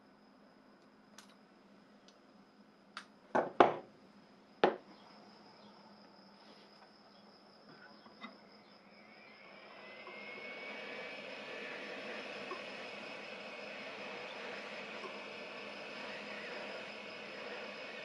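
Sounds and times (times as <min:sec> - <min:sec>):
faint high whine: 0:00.0 - 0:18.0
hiss: 0:09.2 - 0:18.0.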